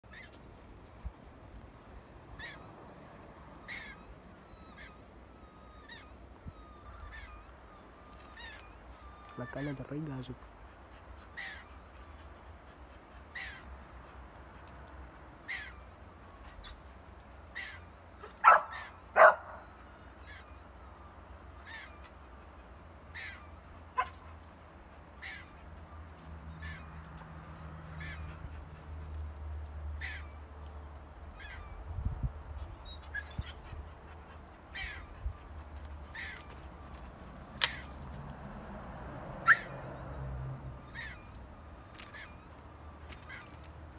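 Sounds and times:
loud dog barks: 0:18.4 - 0:19.7, 0:39.4 - 0:39.8.

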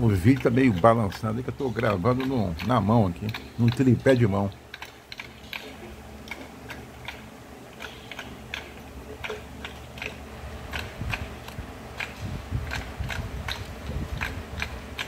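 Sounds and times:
faint low hum: 0:00.0 - 0:15.0
light ticking clicks: 0:00.3 - 0:07.2.

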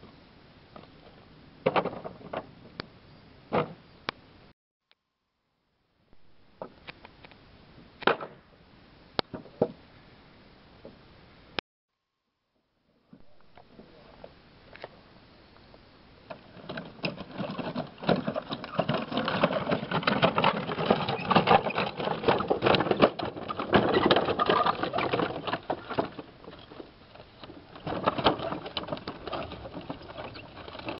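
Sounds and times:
cart wheels rolling over gravel: 0:16.2 - 0:31.0.

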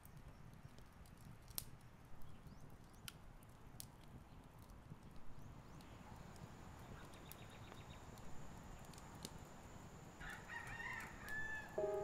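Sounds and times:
rooster crowing faintly: 0:10.2 - 0:12.0
piano music: 0:11.8 - 0:12.0.

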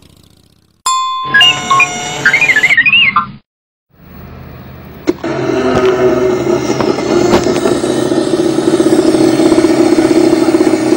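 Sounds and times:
motorcycle engine running: 0:00.0 - 0:00.8, 0:05.1 - 0:10.9.

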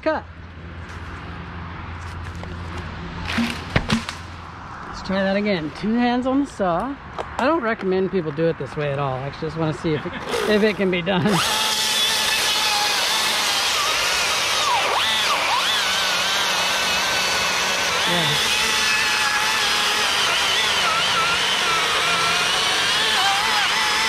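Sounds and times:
chainsaw cutting wood: 0:03.3 - 0:04.2, 0:10.2 - 0:24.0.

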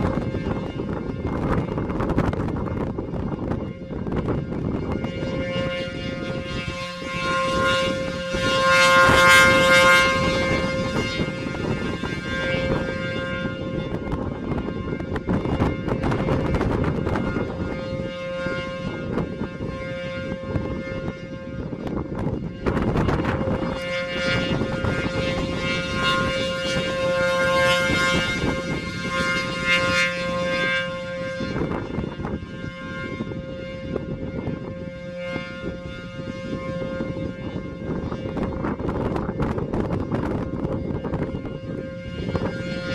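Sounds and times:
rotating warning siren: 0:00.0 - 0:42.9
wind rumble on microphone: 0:00.0 - 0:42.9.

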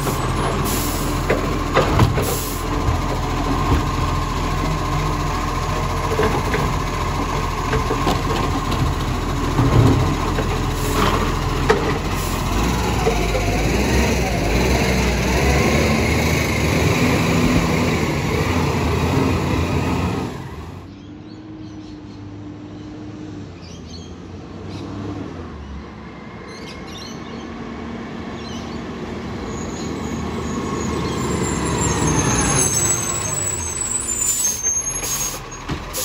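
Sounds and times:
garbage truck engine running: 0:00.0 - 0:20.9
truck approaching along road: 0:00.0 - 0:21.1, 0:24.5 - 0:36.0.

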